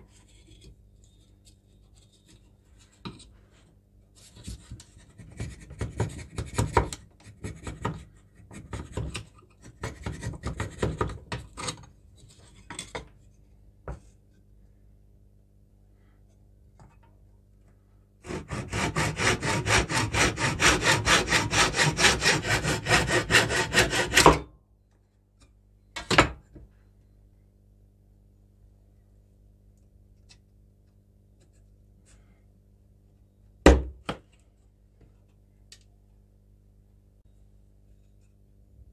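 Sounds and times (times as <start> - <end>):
scraping on wood: 18.2 - 24.3
hand saw cutting wood: 18.2 - 24.4.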